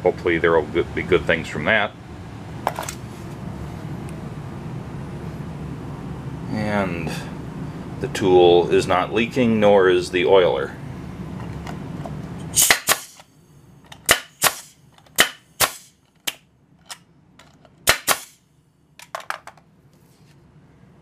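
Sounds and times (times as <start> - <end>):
pneumatic nailer shots: 12.5 - 13.3, 14.0 - 16.4, 17.8 - 18.4.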